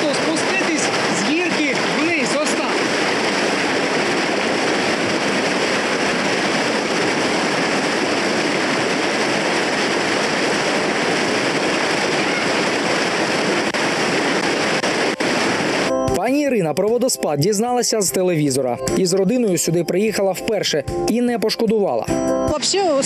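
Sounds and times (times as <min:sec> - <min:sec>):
water rushing over waterfall: 0:00.0 - 0:16.9.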